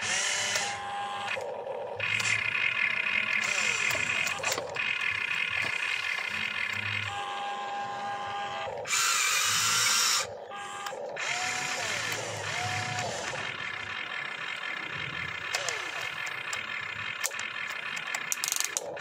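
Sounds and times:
toy electric motors whining: 0.0s - 19.0s.

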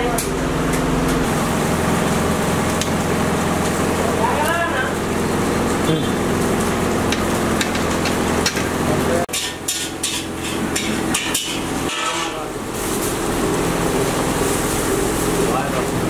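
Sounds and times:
kitchen hum and hiss: 0.0s - 16.0s
utensils and pots clinking: 5.6s - 16.0s.

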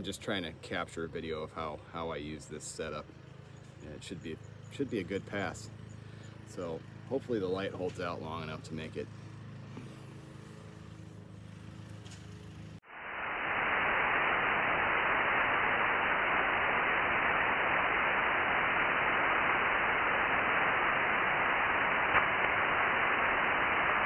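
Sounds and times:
radio static hiss: 9.7s - 11.8s, 12.8s - 24.0s.

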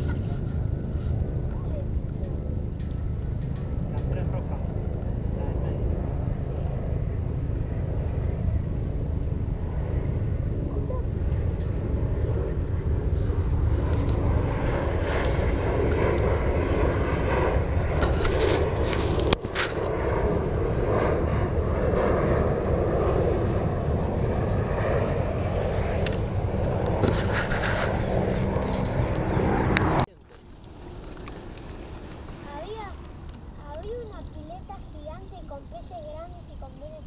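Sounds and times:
aircraft engine rumble overhead: 0.0s - 37.0s
faint whining tones: 0.0s - 37.0s.

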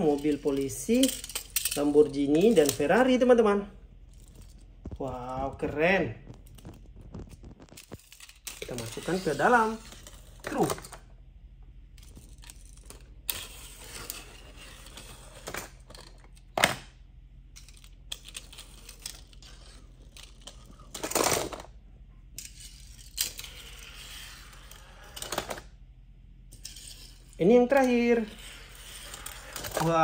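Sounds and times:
toy car wheels rolling: 22.4s - 25.7s, 26.5s - 30.0s
toy cars clacking on plastic track: 26.5s - 30.0s.

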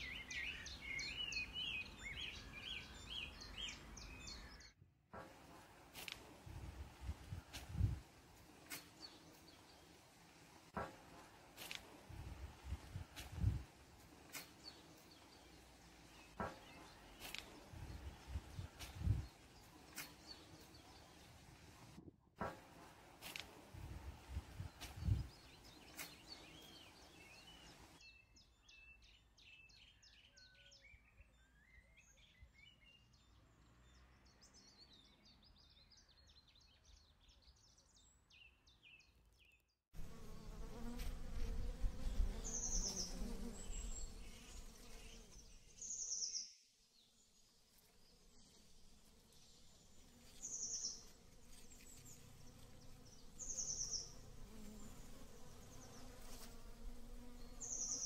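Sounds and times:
small birds chirping: 0.0s - 4.8s, 11.6s - 22.0s, 24.2s - 58.0s
bee buzzing: 5.5s - 21.5s, 40.0s - 45.9s, 48.0s - 58.0s.

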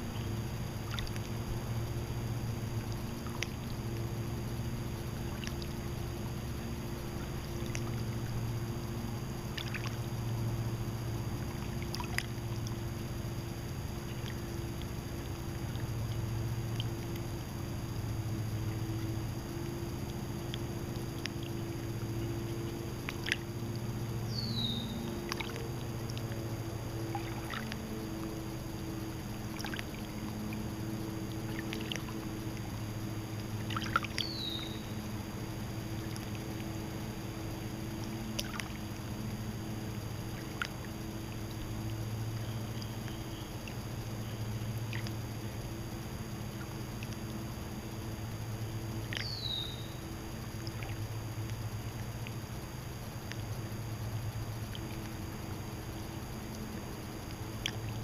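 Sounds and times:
small waves lapping at shore: 0.0s - 58.0s
steady low hum: 0.0s - 58.0s.

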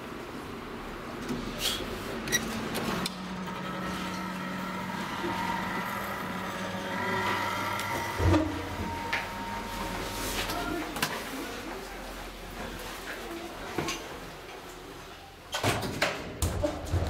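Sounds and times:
low elevator hum: 3.2s - 12.6s.

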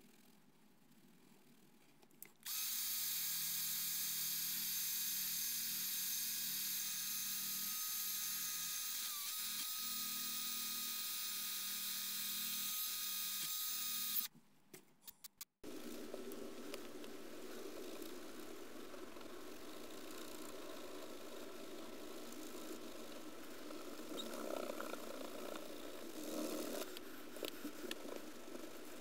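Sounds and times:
electric drill whining: 2.4s - 14.3s.

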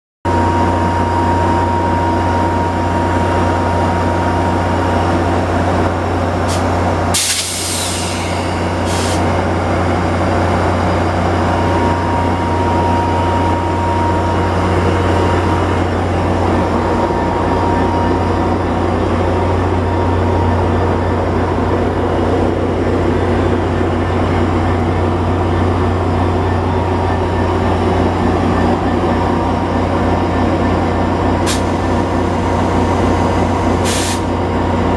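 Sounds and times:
diesel locomotive idling: 0.3s - 34.9s
air brake hiss: 6.5s - 9.3s, 31.5s - 31.8s, 33.8s - 34.3s.

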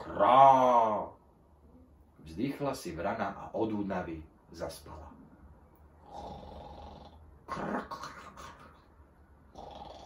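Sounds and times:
man imitating snoring: 6.0s - 7.8s, 9.5s - 10.0s.

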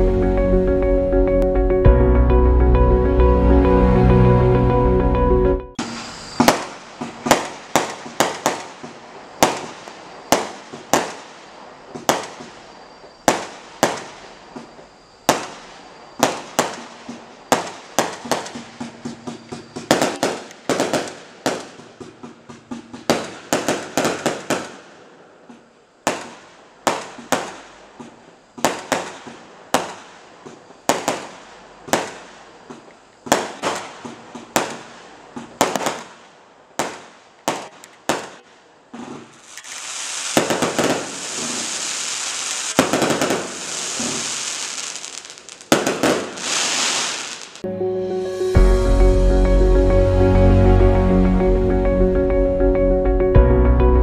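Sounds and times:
firework cake sharp bangs: 5.8s - 47.6s.

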